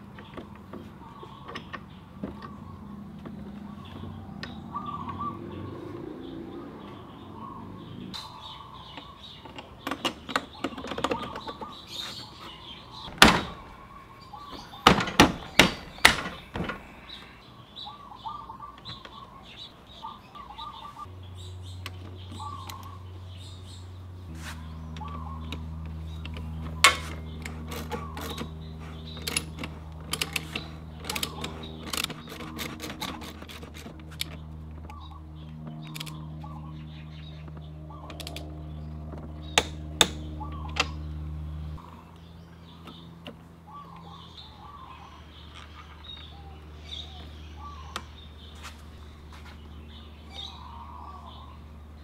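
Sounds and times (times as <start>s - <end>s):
birds chirping: 0.0s - 52.0s
low hum: 19.3s - 52.0s
socket ratchet clicking: 26.1s - 34.4s.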